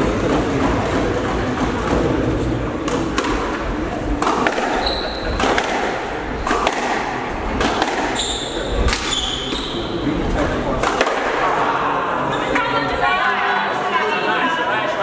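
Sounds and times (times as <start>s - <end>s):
spectators murmuring: 0.0s - 15.0s
squash ball cracks: 2.8s - 8.2s, 8.8s - 9.6s, 10.8s - 11.4s
shoes squeaking on wooden floor: 4.8s - 5.4s, 8.1s - 10.0s.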